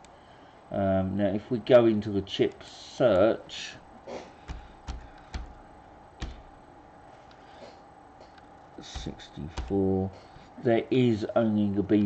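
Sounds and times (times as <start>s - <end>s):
computer keyboard keystrokes: 4.5s - 5.6s, 6.2s - 6.5s, 8.9s - 9.8s.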